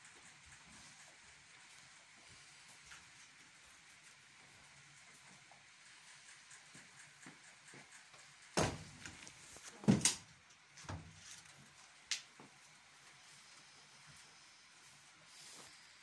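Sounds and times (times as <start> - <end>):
faint room noise: 0.0 - 16.0
knocks and bumps: 8.6 - 11.2.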